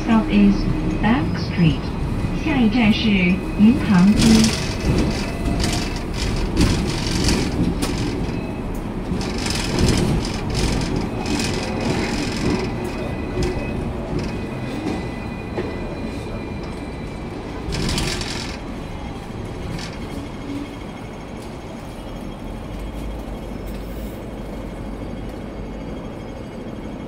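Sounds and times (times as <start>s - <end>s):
tram rumble and rattle: 0.0s - 27.0s
clicks over rails: 4.1s - 8.4s, 9.1s - 14.5s, 17.7s - 18.6s.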